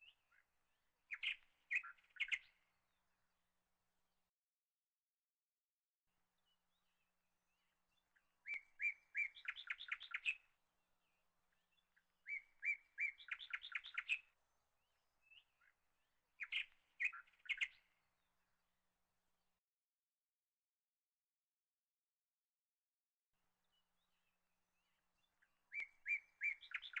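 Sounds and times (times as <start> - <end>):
bird singing: 0.0 - 3.3, 6.4 - 18.6, 23.6 - 27.0.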